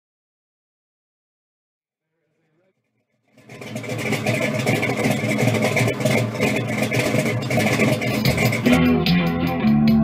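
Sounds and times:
car engine idling: 2.0 - 9.4.

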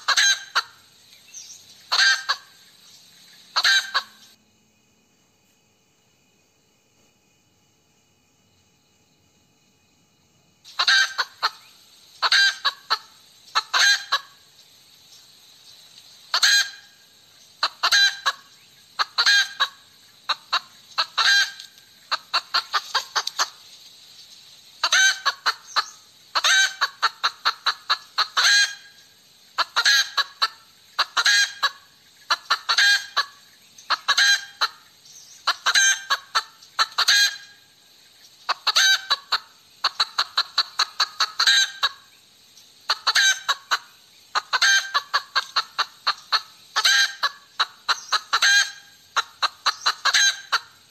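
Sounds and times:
hen cackling: 0.0 - 2.7, 3.3 - 4.4, 10.7 - 14.5, 16.2 - 23.6, 24.8 - 37.8, 38.5 - 42.1, 42.8 - 50.9.

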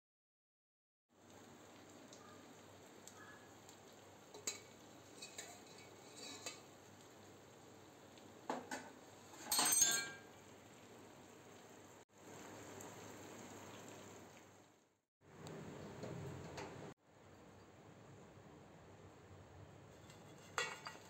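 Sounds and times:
faint steady hiss: 1.1 - 21.0
ladle stirring in metal pan: 4.3 - 6.9, 19.9 - 21.0
ladle scraping clatter: 19.9 - 21.0.

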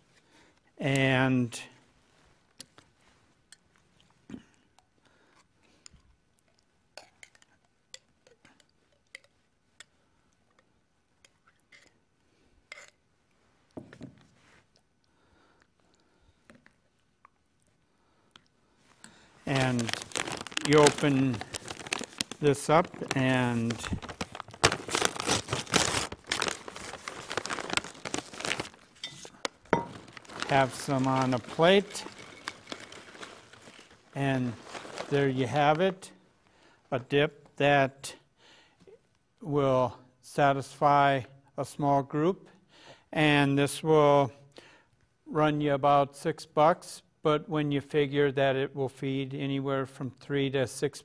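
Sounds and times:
chip bag crinkling: 19.4 - 36.0.

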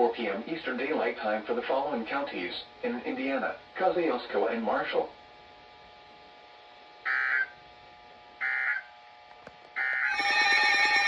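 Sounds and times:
warbling data tones: 7.0 - 7.6, 9.8 - 11.0
electronic alert alarm: 7.1 - 7.6, 8.4 - 8.9, 9.8 - 11.0.

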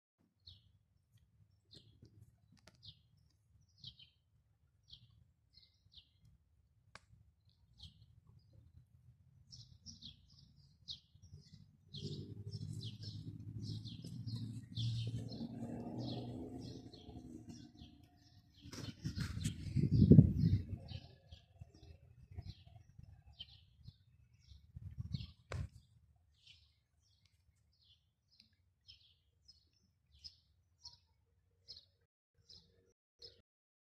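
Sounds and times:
small birds chirping: 0.4 - 0.8, 1.5 - 6.4, 7.4 - 8.8, 9.5 - 33.4
low rumbling noise: 12.0 - 18.0.

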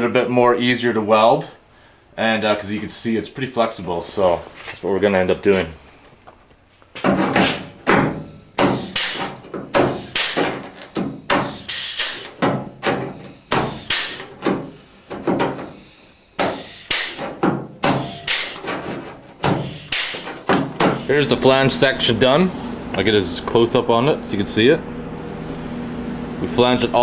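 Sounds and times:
pneumatic flange tool clunking: 7.0 - 21.4.

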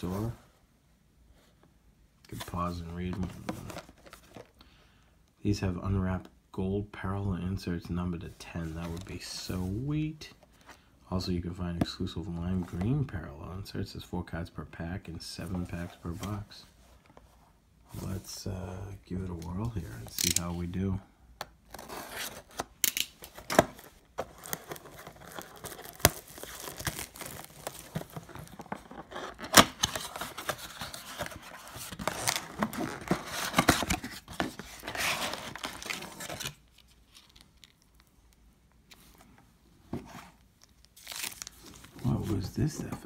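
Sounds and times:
cardboard flaps tearing: 23.6 - 36.6.

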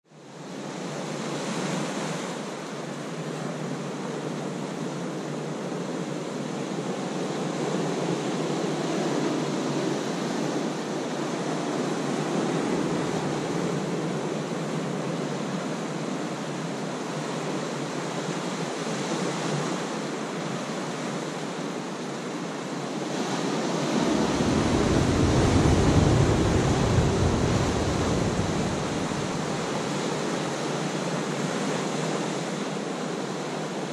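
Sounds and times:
ocean surf on rocky shore: 0.2 - 33.9.

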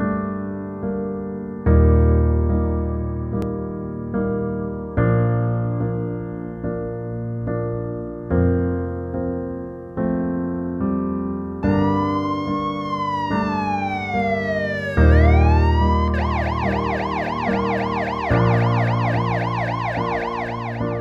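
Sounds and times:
soft piano music: 0.0 - 21.0
ambulance siren wail and yelp: 11.7 - 21.0.

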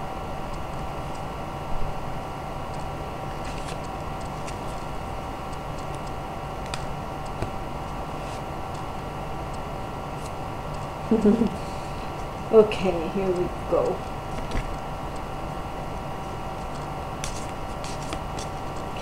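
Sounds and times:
electrical hum: 0.0 - 19.0
cards being handled: 3.3 - 4.9, 8.2 - 8.9, 14.3 - 14.8, 16.6 - 19.0.

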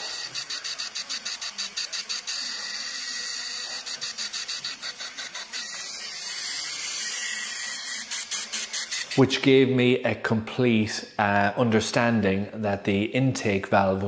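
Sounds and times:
compressed air hissing and fluttering: 4.1 - 9.5.

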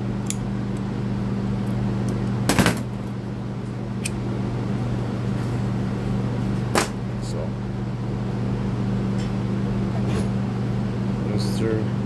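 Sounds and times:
electric fans humming: 0.0 - 12.0.

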